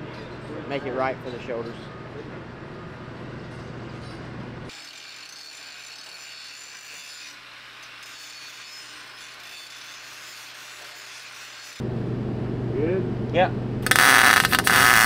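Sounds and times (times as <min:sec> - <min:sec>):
angle grinder grinding steel: 0:04.7 - 0:11.8, 0:13.8 - 0:15.0.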